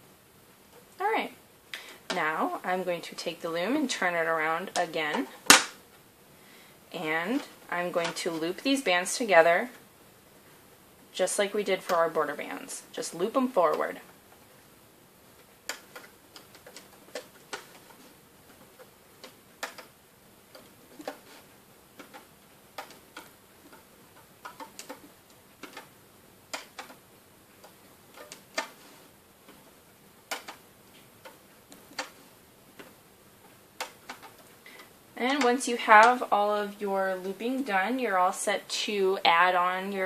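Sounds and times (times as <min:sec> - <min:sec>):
rubber bands snapping: 0:04.7 - 0:05.8, 0:15.3 - 0:33.0, 0:33.7 - 0:36.2.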